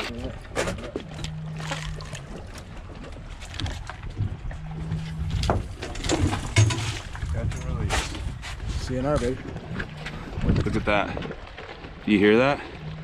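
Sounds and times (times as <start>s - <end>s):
low boat rumble: 0.0s - 13.0s
fish splashing: 1.1s - 7.3s
wind on microphone: 3.9s - 12.0s.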